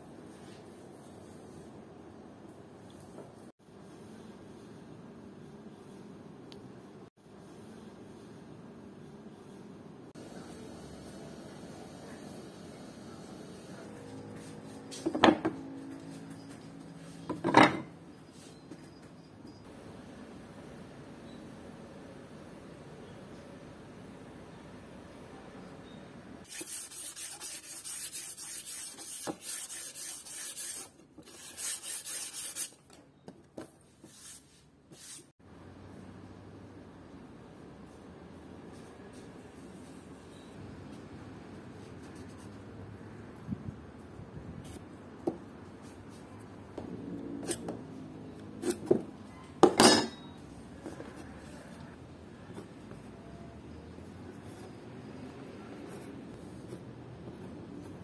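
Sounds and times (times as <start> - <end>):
sandpaper rubbing on wood: 26.5 - 32.8.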